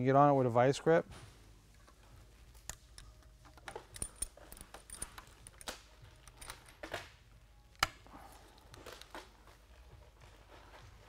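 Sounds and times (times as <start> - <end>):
pliers clinking and scraping on screw: 2.6 - 7.1.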